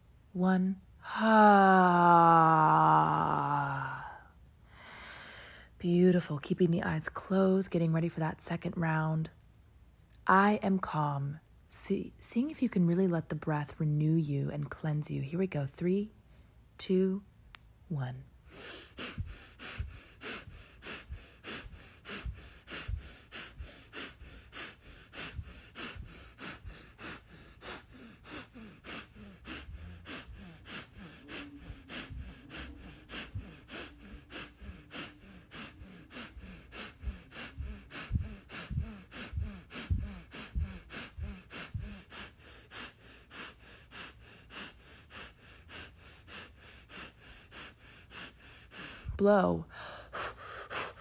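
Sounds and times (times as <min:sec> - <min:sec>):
woman breathing fast: 0:03.7 - 0:05.8, 0:18.4 - 0:51.0.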